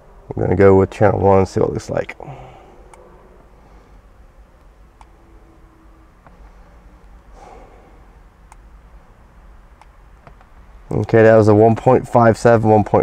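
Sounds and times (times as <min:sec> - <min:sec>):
vehicle cab hum: 0:00.0 - 0:13.0
soft breath: 0:02.2 - 0:04.4, 0:06.3 - 0:08.2.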